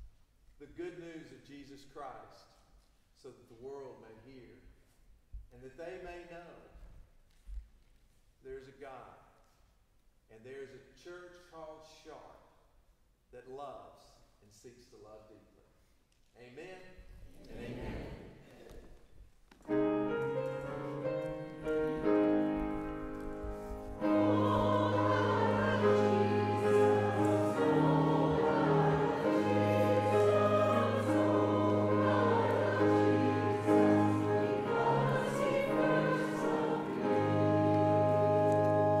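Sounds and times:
church organ music: 0:19.7 - 0:39.0.

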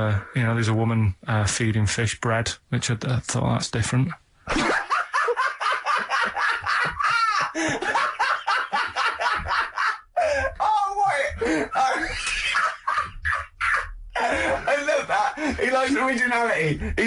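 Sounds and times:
men speaking: 0:00.0 - 0:04.3, 0:06.2 - 0:17.0
high-pitched laugh: 0:04.5 - 0:10.5, 0:11.8 - 0:14.7
men laughing: 0:04.5 - 0:17.0.

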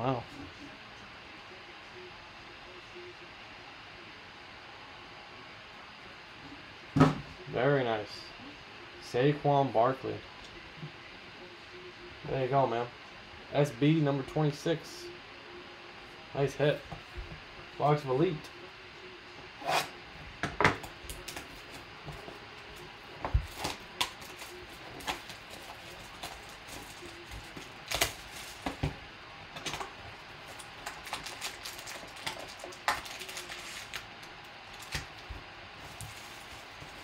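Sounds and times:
cellophane crinkling and tearing: 0:23.4 - 0:28.8, 0:30.5 - 0:35.2, 0:35.8 - 0:37.0.

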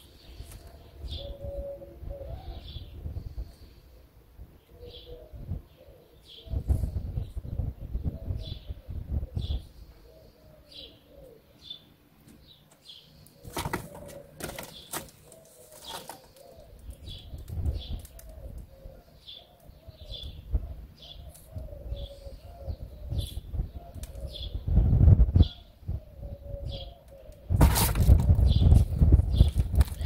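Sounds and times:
small birds chirping: 0:00.0 - 0:30.0
pigeon cooing: 0:00.6 - 0:03.0, 0:04.7 - 0:11.7, 0:13.4 - 0:24.7, 0:25.4 - 0:27.6
sharp clicks and rustles: 0:12.2 - 0:18.7, 0:27.1 - 0:30.0.

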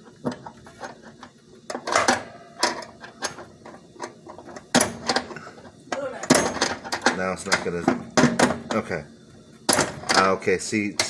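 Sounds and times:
air fryer rotisserie clicks and knocks: 0:01.2 - 0:05.3, 0:05.9 - 0:09.0, 0:09.7 - 0:11.0.

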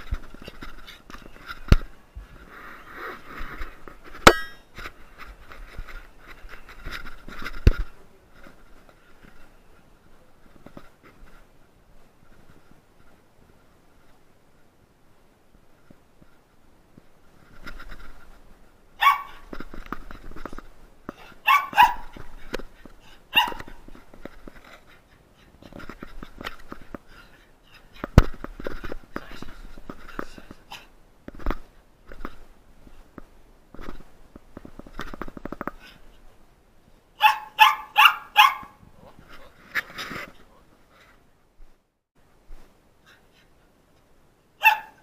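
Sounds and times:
faint rustling: 0:00.0 - 0:45.0
clinking ring: 0:04.3 - 0:04.7
young dog barking: 0:19.0 - 0:19.4, 0:21.4 - 0:22.2, 0:23.3 - 0:23.8, 0:37.2 - 0:38.8, 0:44.6 - 0:45.0.

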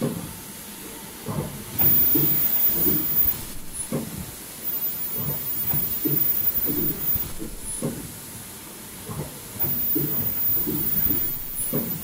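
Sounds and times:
production line machinery hissing: 0:00.0 - 0:12.0
low machine thuds: 0:01.3 - 0:04.2, 0:04.8 - 0:08.1, 0:09.1 - 0:12.0
very high whine: 0:01.8 - 0:03.9.

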